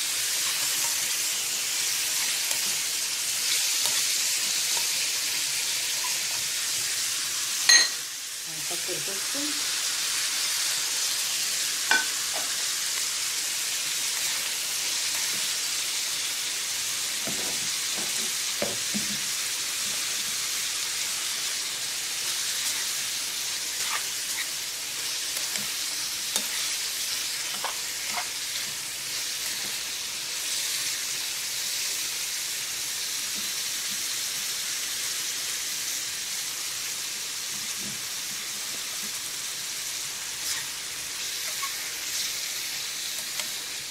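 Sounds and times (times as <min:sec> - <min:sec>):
food sizzling in hot oil: 0:00.0 - 0:43.9.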